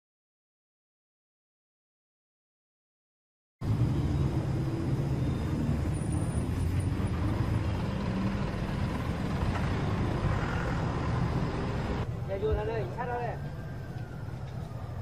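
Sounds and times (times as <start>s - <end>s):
road noise: 3.6s - 15.0s
vehicles driving past: 3.6s - 15.0s.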